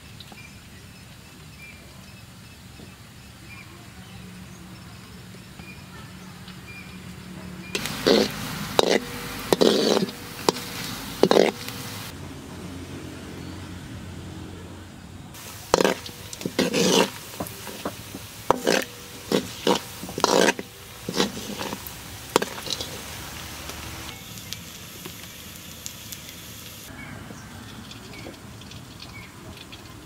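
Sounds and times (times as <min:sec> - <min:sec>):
oil sizzling in a wok: 0:07.6 - 0:12.2, 0:15.3 - 0:30.0
oil spitting and crackling: 0:07.7 - 0:12.2, 0:15.3 - 0:26.9, 0:27.6 - 0:30.0.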